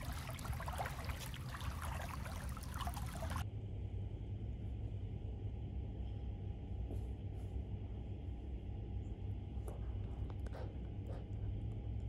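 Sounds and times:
pool water splashing: 0:00.0 - 0:03.4
low steady hum: 0:00.0 - 0:12.0.

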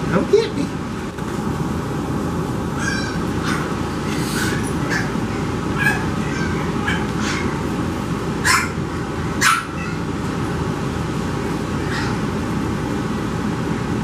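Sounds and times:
puppies yipping and barking: 0:02.7 - 0:10.2, 0:11.7 - 0:12.4.

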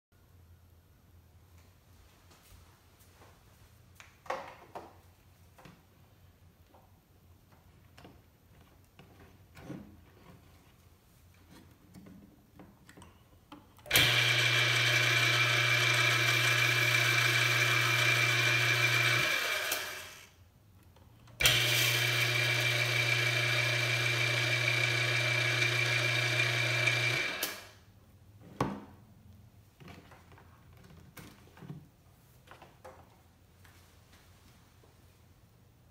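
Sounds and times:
electric motor humming and whirring: 0:13.9 - 0:20.3, 0:21.4 - 0:27.7.

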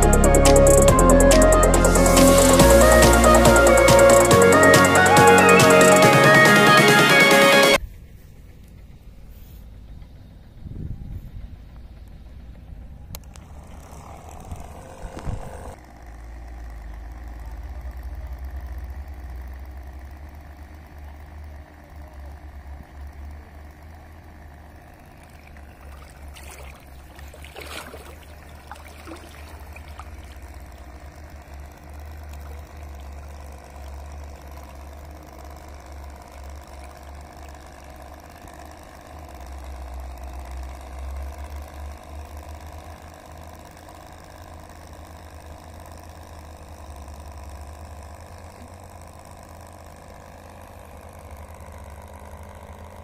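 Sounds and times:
small electric motor running: 0:00.0 - 0:07.8, 0:12.3 - 0:53.0
wind rumble on microphone: 0:10.6 - 0:11.7.

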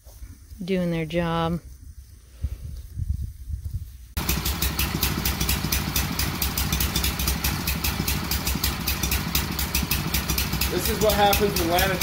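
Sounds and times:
pressure washer engine running: 0:04.2 - 0:12.0.

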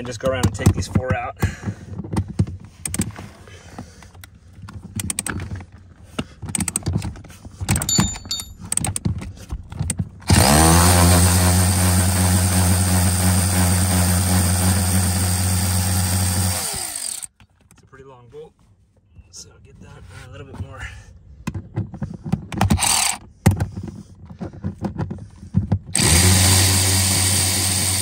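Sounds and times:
electric ratchet motor running: 0:10.3 - 0:17.3, 0:22.8 - 0:23.2, 0:26.0 - 0:28.0.

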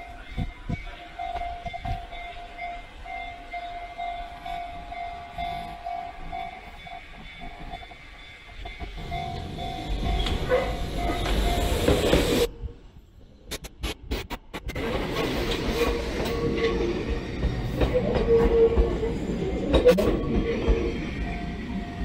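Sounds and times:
level crossing alarm ringing: 0:00.0 - 0:12.2
train rumble: 0:00.0 - 0:22.0.

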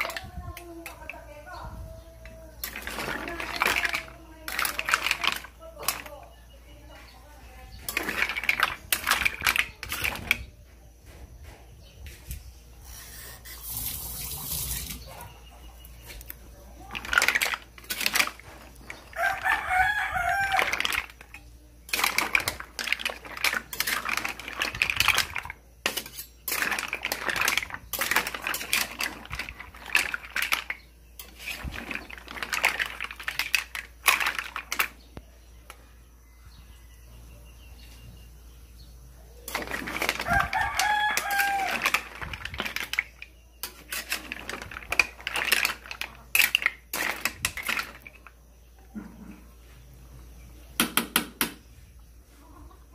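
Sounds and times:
clattering and knocking: 0:02.2 - 0:06.1, 0:07.8 - 0:10.5, 0:16.8 - 0:35.0, 0:39.5 - 0:48.3.

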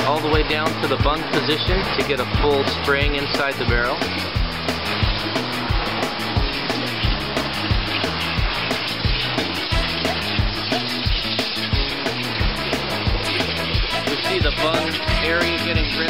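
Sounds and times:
background music with beat: 0:00.0 - 0:16.0
water pouring out: 0:00.0 - 0:16.0
water spraying inside barrel: 0:00.0 - 0:16.0.

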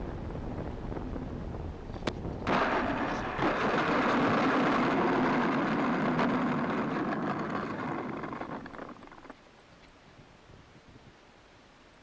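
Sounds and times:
small wheels rolling over pavement: 0:02.5 - 0:09.4.

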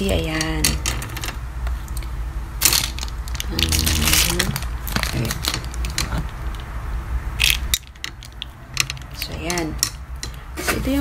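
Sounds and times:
packaging foam crunching: 0:02.6 - 0:06.2.

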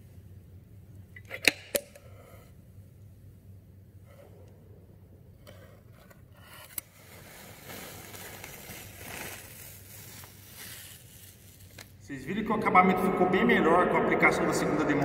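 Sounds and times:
tape peeling off concrete: 0:06.5 - 0:12.0.

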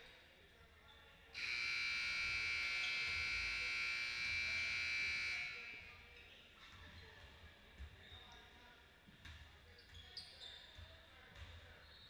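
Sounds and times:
scoreboard buzzer: 0:01.4 - 0:05.7.

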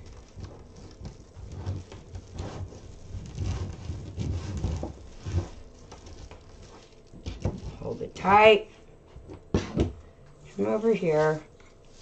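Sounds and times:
plastic foil mesh crinkling: 0:00.0 - 0:08.2.

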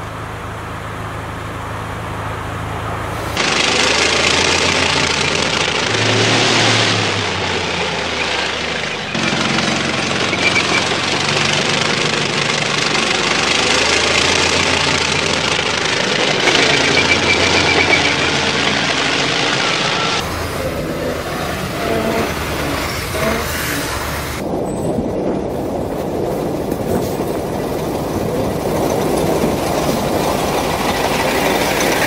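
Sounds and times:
steel tracks on snowy ground: 0:00.0 - 0:32.0
tank diesel engines running: 0:00.0 - 0:32.0
rapid ticking: 0:07.4 - 0:23.4.

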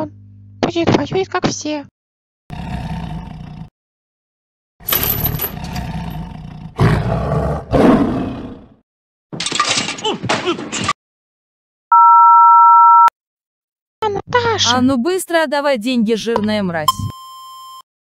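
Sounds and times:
cartoon monster roaring: 0:02.5 - 0:03.7, 0:05.4 - 0:08.8
two-tone electronic beep: 0:11.9 - 0:13.1, 0:16.8 - 0:17.8.

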